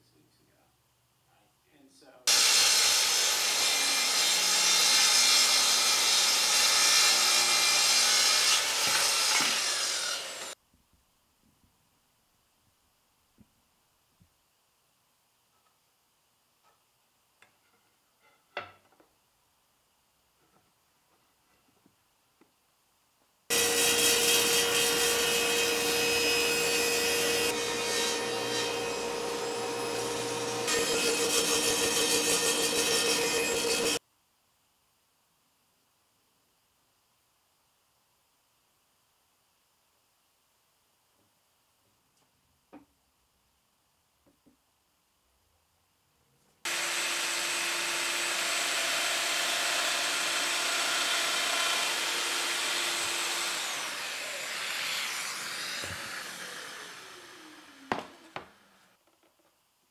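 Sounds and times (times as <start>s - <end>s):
track saw cutting wood: 2.3s - 10.6s, 23.5s - 34.0s, 46.7s - 58.9s.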